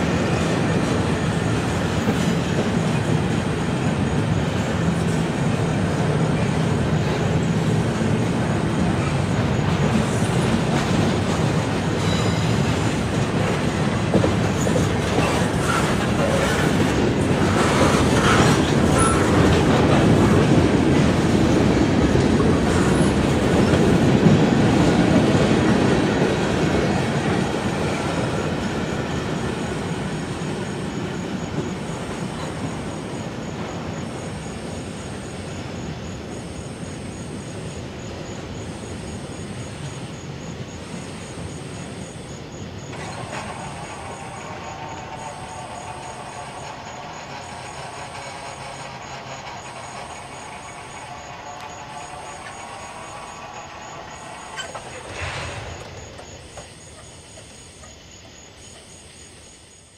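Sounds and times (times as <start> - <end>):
freight cars rumbling past: 42.1 - 57.7.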